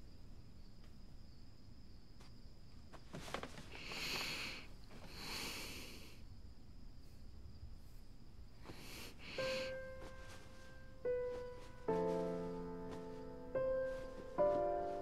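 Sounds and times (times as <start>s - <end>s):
crickets chirring: 0.0s - 15.0s
person breathing slowly: 3.7s - 6.3s, 8.6s - 15.0s.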